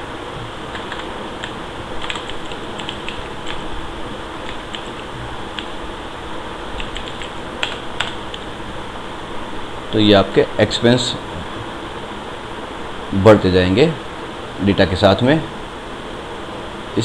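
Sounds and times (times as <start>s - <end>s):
steady background hiss: 0.0s - 17.0s
keyboard keys clicking: 0.7s - 3.7s, 4.4s - 5.7s, 6.8s - 8.5s.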